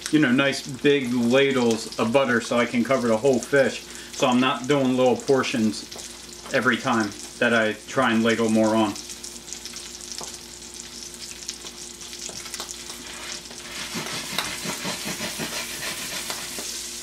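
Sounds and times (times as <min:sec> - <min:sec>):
fish sizzling in a pan: 0:00.0 - 0:17.0
pan being shaken: 0:13.6 - 0:16.7.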